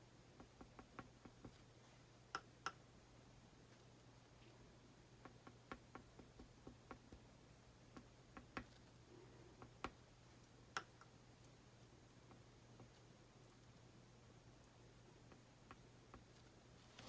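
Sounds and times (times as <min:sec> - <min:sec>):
stylus tapping on canvas: 0:05.2 - 0:07.3.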